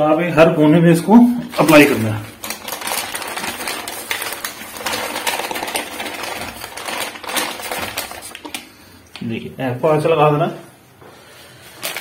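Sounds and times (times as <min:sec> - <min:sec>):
plastic packet crinkling: 0:01.4 - 0:09.3, 0:11.7 - 0:12.0.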